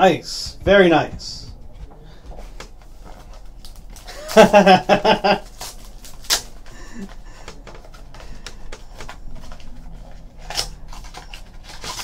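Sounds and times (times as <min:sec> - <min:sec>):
cards sliding and rustling: 0:05.5 - 0:12.0.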